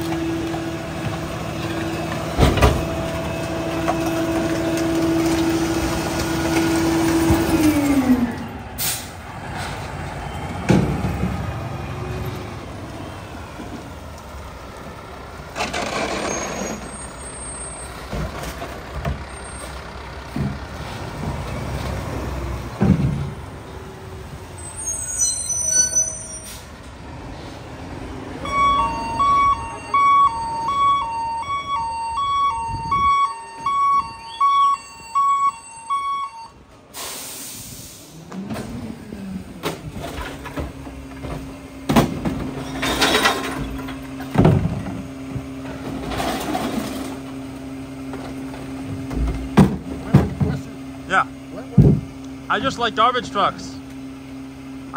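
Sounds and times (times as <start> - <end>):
garbage truck engine: 0.0 - 54.9
air brake hiss: 8.8 - 9.2, 36.9 - 38.2
back-up alarm beeping: 28.4 - 36.6.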